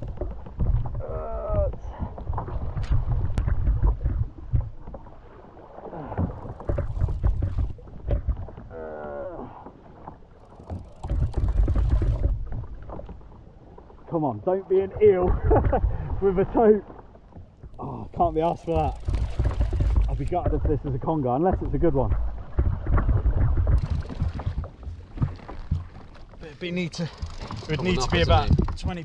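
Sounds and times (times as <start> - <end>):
water slapping around kayak: 0.0 - 29.0
wind on microphone: 18.7 - 20.8, 27.4 - 29.0.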